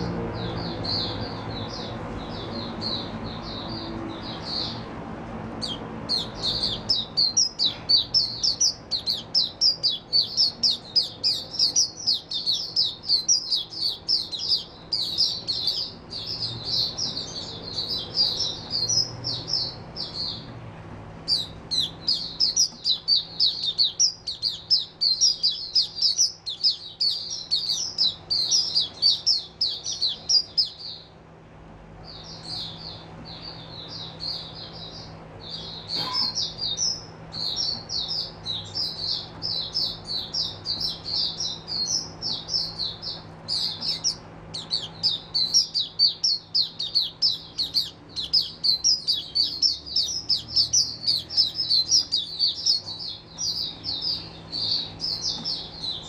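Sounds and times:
bird twittering song: 0.0s - 20.6s, 21.2s - 31.2s, 32.0s - 56.0s.

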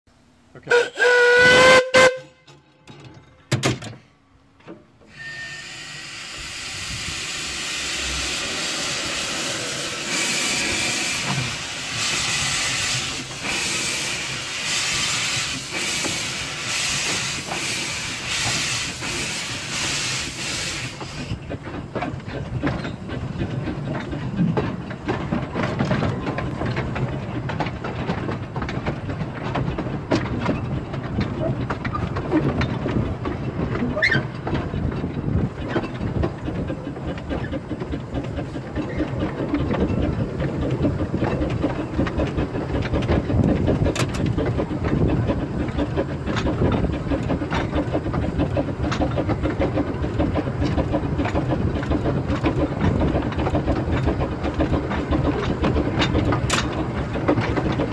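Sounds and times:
rattle of running train: 0.1s - 57.9s
steam locomotive exhaust chuffs: 0.6s - 2.4s, 5.0s - 57.9s
steam hiss: 5.1s - 21.4s.

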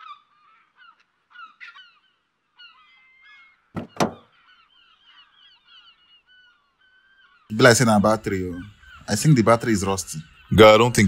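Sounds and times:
birds chirping: 0.0s - 11.0s
sharp knocks: 3.8s - 4.2s.

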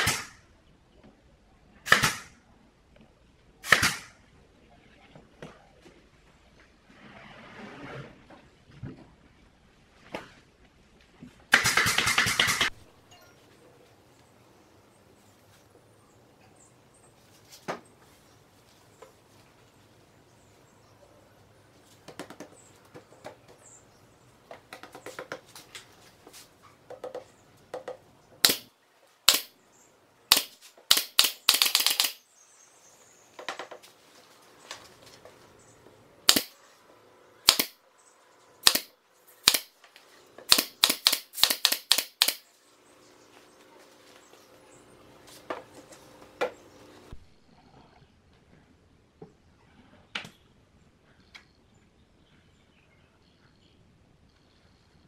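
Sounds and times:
nail gun firing: 0.0s - 0.4s, 1.9s - 2.4s, 3.6s - 4.2s, 11.5s - 12.8s, 28.4s - 28.7s, 29.3s - 29.5s, 30.3s - 32.2s, 36.3s - 36.6s, 37.4s - 37.8s, 38.6s - 39.7s, 40.5s - 42.4s
boards being handled: 24.4s - 29.2s.

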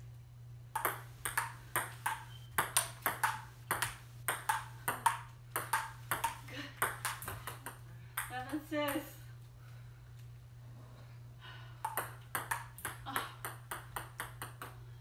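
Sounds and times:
ping pong ball hitting paddles: 0.7s - 9.0s, 11.8s - 14.8s
ping pong ball bouncing on table: 0.8s - 9.0s, 11.8s - 14.8s.

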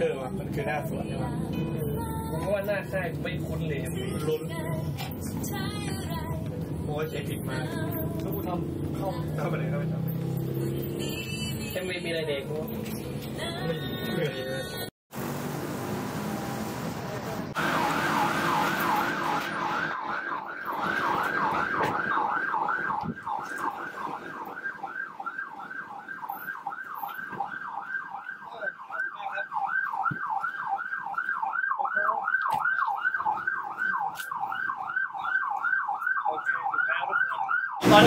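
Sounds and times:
electronic siren yelping: 17.6s - 38.0s.

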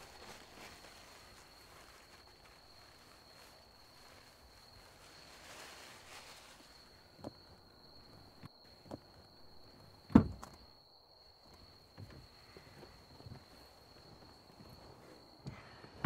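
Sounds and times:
soft rustle: 0.0s - 10.0s
insect trill: 0.0s - 16.0s.

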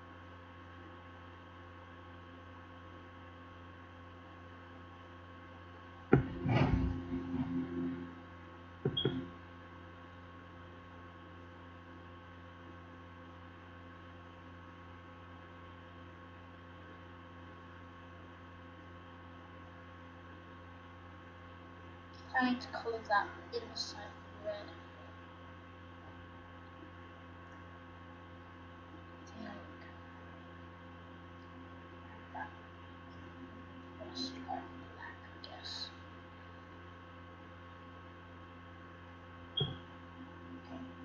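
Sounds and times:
electrical mains hum: 0.0s - 41.0s
sharp knock: 6.1s - 7.1s.

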